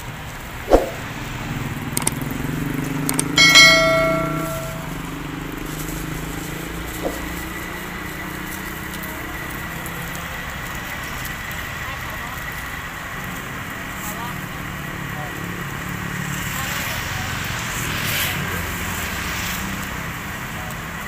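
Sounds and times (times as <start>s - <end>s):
low hum of traffic: 0.0s - 21.0s
small clicks: 2.0s - 2.2s, 3.1s - 3.4s
loud metallic clang: 3.4s - 5.1s, 7.0s - 7.4s.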